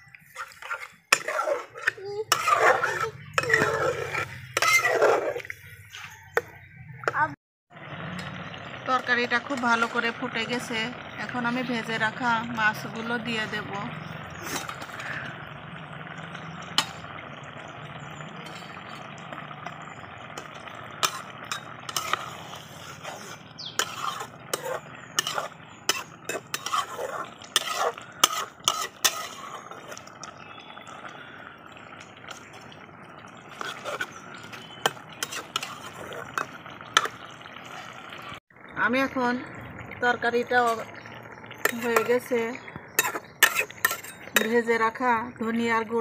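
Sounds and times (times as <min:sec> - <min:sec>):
metal spatula scraping pot: 0:00.0 - 0:06.4, 0:09.0 - 0:31.2, 0:32.1 - 0:38.0, 0:40.5 - 0:44.8
curry simmering and bubbling: 0:00.0 - 0:45.4.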